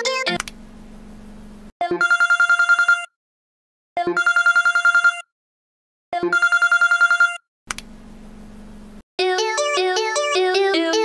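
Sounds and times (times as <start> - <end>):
electronic phone ringtone trill: 1.8 - 3.2, 4.0 - 5.3, 6.2 - 7.4.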